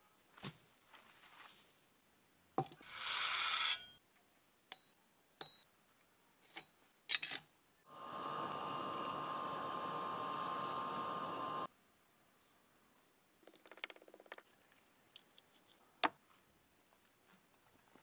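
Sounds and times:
charcoal fire rushing: 0:07.9 - 0:11.7.

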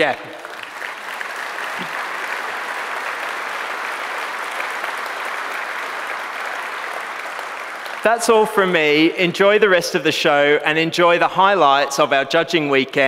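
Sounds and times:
audience applauding: 0:00.0 - 0:09.5.

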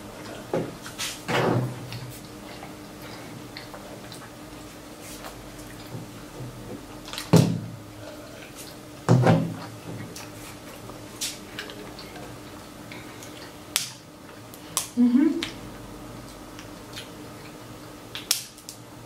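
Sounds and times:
eating sounds: 0:01.8 - 0:18.6.

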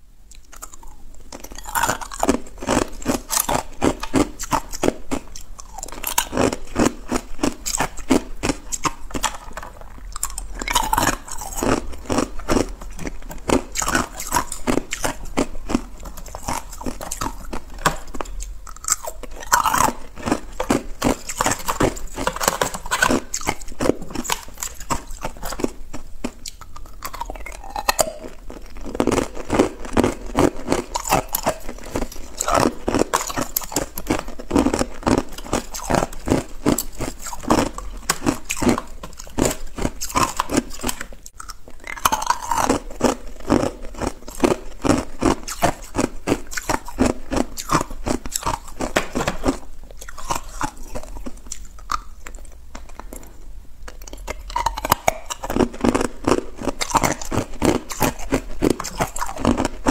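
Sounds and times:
ice being chewed: 0:00.3 - 0:59.9.

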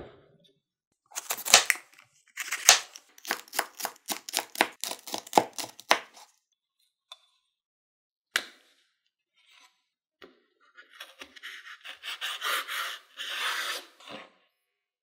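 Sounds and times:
knife crackling through cabbage leaf: 0:01.2 - 0:06.3.

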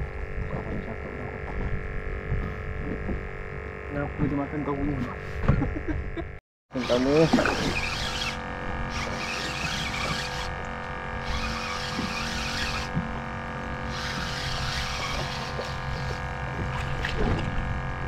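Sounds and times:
steady hum: 0:00.0 - 0:18.0
fishing reel hissing: 0:06.8 - 0:10.5, 0:11.2 - 0:12.9, 0:13.9 - 0:16.2.

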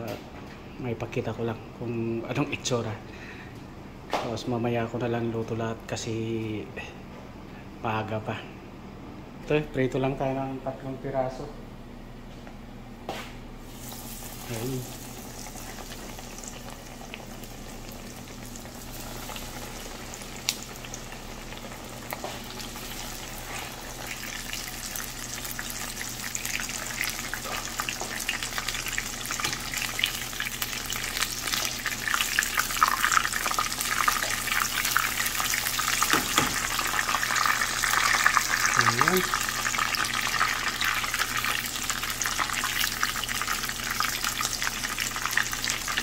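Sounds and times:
breaded meat frying in oil: 0:13.7 - 0:46.0.

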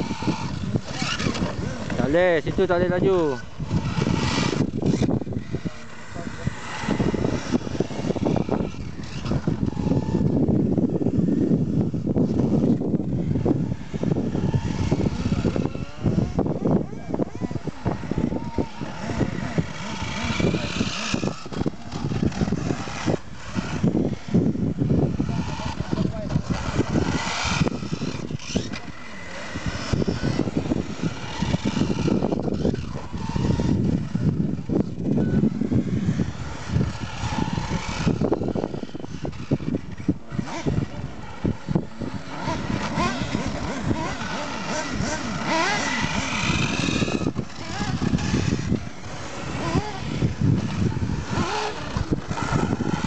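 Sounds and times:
model car motors whining: 0:00.0 - 0:53.0
wind on microphone: 0:00.0 - 0:53.0.

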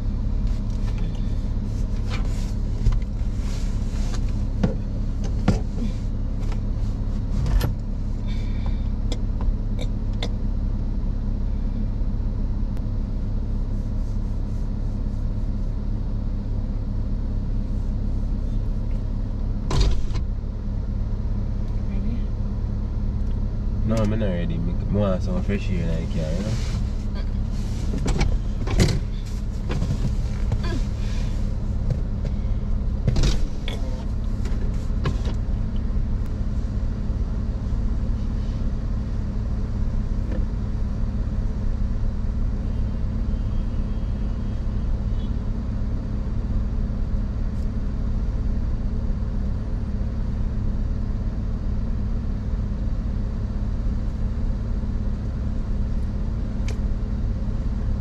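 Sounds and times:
car idling with air conditioning: 0:00.0 - 0:58.0
knocks and rustles of movement: 0:00.4 - 0:07.9, 0:26.0 - 0:36.5.

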